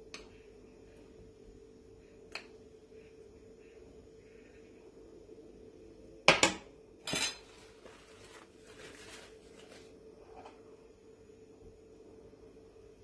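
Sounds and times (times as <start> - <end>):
metal spoon clinking on cookware: 7.1 - 7.5.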